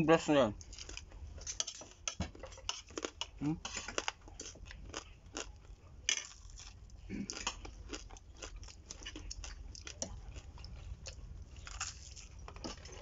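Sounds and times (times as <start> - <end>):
crunching and chewing fried food: 0.6 - 13.0.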